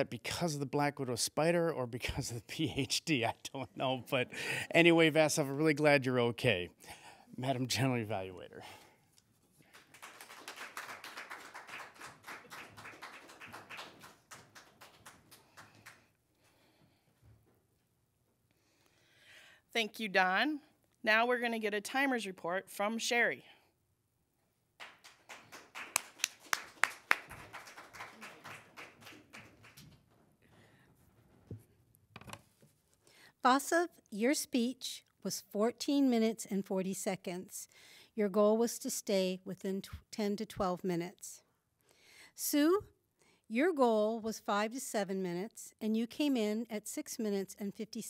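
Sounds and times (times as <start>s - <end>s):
light applause: 9.7s - 16.1s, 24.8s - 30.0s.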